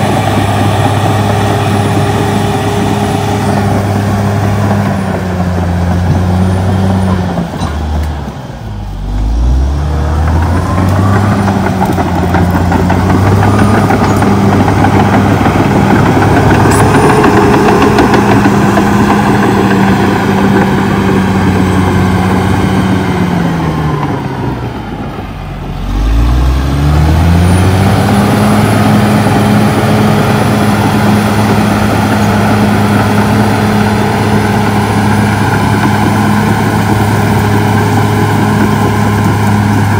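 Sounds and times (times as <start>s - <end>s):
bulldozer diesel engine running hard: 0.0s - 39.9s.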